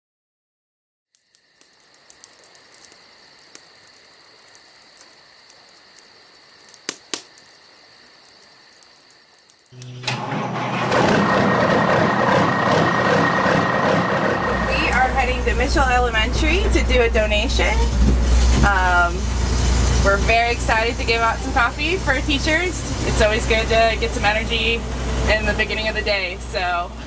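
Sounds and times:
sharp clicks: 4.4 - 7.6
truck engine running: 9.8 - 27.0.

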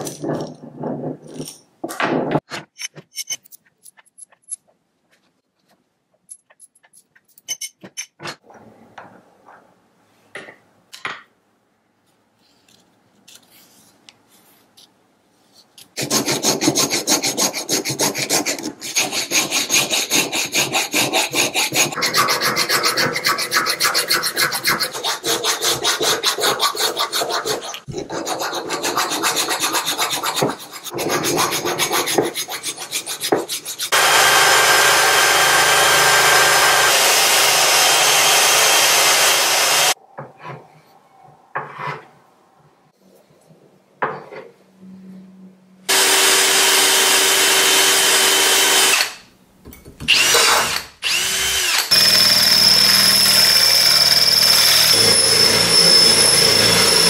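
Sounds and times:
hand file rasping: 16.0 - 40.0
cordless drill boring into steel: 34.0 - 40.0, 45.9 - 49.2, 50.1 - 57.0.

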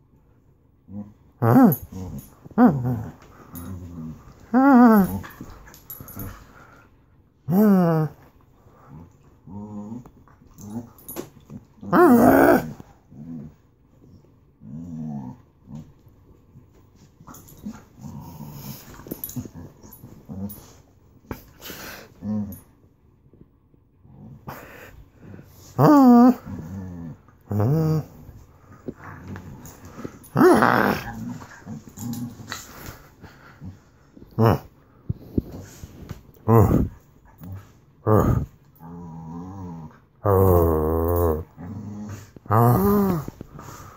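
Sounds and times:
dog low grumbling: 0.9 - 6.3, 7.5 - 8.2, 11.8 - 13.6, 24.0 - 43.9
dog growl-whining: 0.9 - 6.4, 7.4 - 11.1, 11.7 - 13.6, 14.6 - 15.8, 17.3 - 20.8, 24.0 - 43.9.

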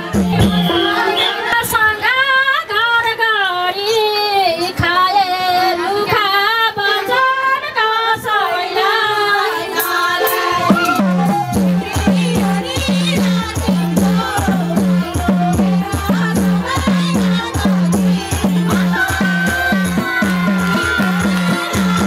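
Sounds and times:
regular drum beat: 0.0 - 1.0, 10.3 - 22.0
women singing folk song: 0.0 - 22.0.

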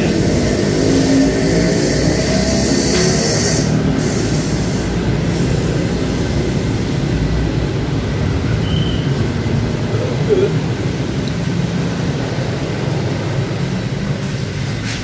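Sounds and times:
road traffic rumble: 0.0 - 15.0
high hiss: 0.2 - 6.9.

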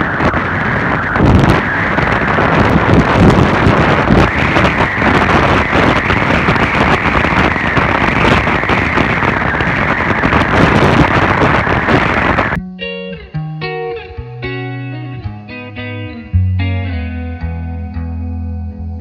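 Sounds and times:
vehicle engine: 0.0 - 13.0
wind buffeting microphone: 0.0 - 16.4
road noise: 0.0 - 17.2.

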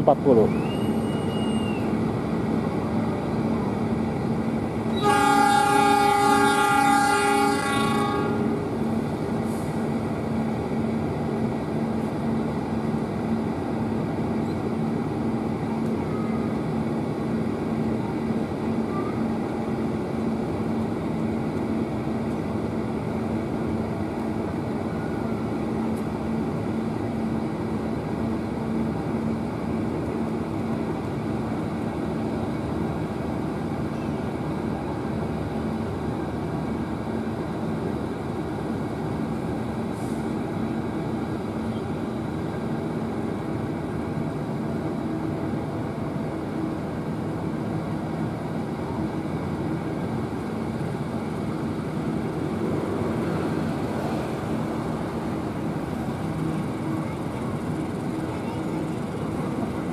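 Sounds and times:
locomotive engine drone: 0.0 - 59.9
locomotive horn blast: 4.9 - 8.7.

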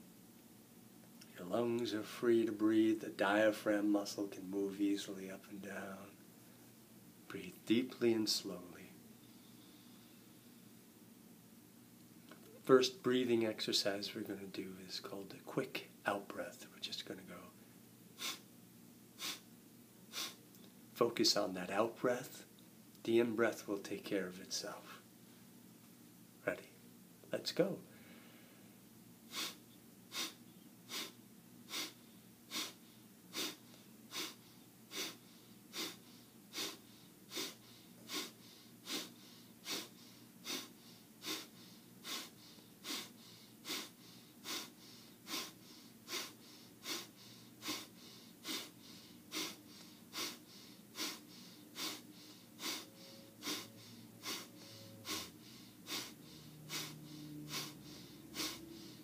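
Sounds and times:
short forceful nasal exhalations: 18.2 - 18.4, 19.2 - 19.5, 20.1 - 20.4, 29.3 - 59.0.

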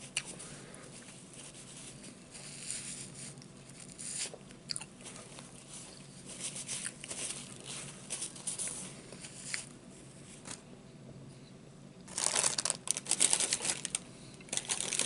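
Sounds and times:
paper crinkling and rustling: 5.0 - 9.7, 12.1 - 15.0.

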